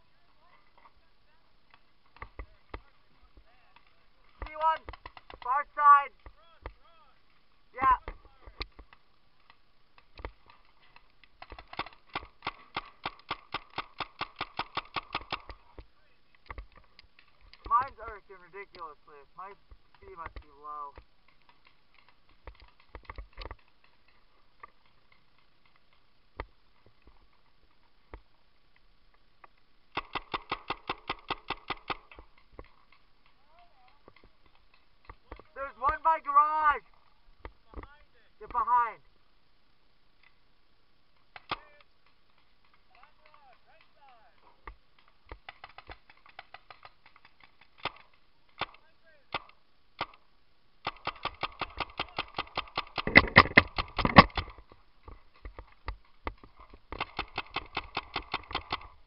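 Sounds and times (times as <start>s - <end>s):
paintball marker shots: 8.0s - 15.9s, 29.9s - 33.0s, 50.8s - 54.6s, 55.6s - 59.0s.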